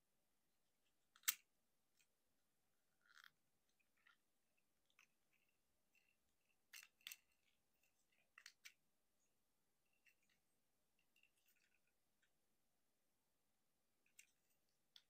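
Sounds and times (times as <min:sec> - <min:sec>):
plastic toy parts clicking: 0:01.1 - 0:02.1, 0:06.0 - 0:08.8.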